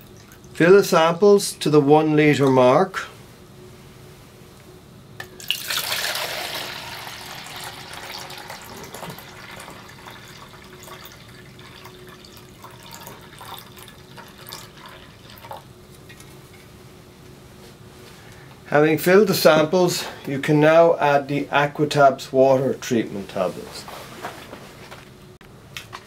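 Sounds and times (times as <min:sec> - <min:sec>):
water pouring into plastic beaker: 0:05.4 - 0:15.7.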